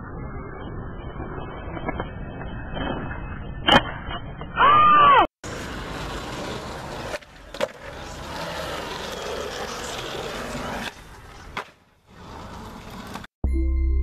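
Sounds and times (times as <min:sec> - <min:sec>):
skateboard wheels rolling on concrete: 0:05.4 - 0:13.3
skateboard clack: 0:05.6 - 0:13.3.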